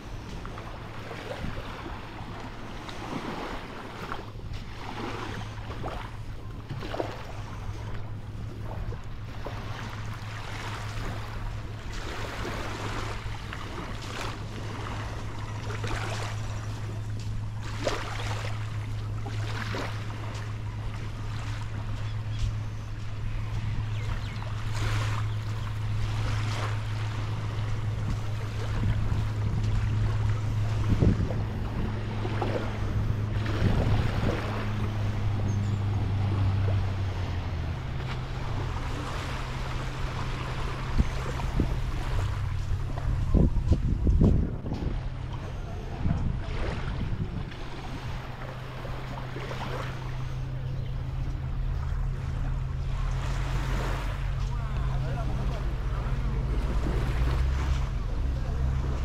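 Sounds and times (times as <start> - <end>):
small waves washing on beach: 0.0 - 59.0
steady low hum: 0.0 - 59.0
wind on microphone: 19.0 - 49.8.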